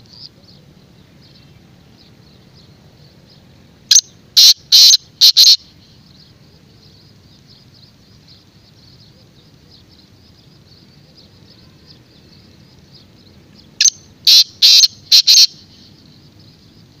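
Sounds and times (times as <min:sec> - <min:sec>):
faint high chirping: 0:01.2 - 0:17.0
bird calling sharp notes: 0:03.9 - 0:05.8, 0:13.8 - 0:15.9.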